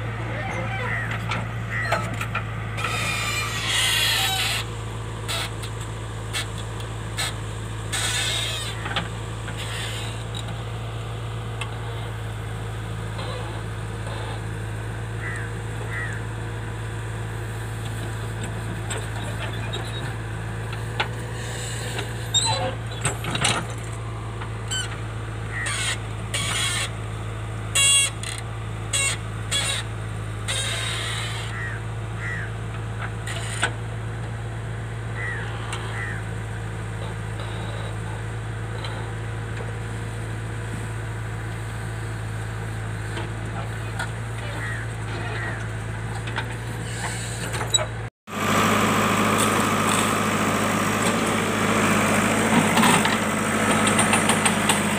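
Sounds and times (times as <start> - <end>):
diesel engine running: 0.0 - 54.9
digger clanks and knocks: 0.5 - 10.7, 17.8 - 27.0, 43.0 - 48.1, 49.0 - 54.9.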